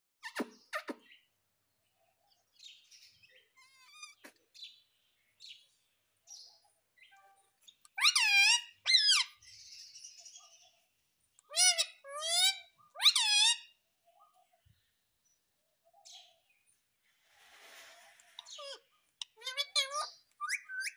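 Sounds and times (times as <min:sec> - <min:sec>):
parakeet chirping and calling: 0:02.6 - 0:04.8, 0:06.3 - 0:10.7, 0:11.4 - 0:13.8, 0:17.6 - 0:20.9.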